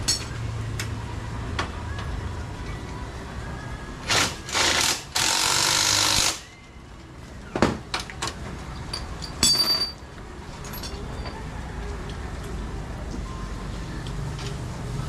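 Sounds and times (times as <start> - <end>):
metal tools knocking and clinking: 8.9 - 10.0, 10.6 - 11.4.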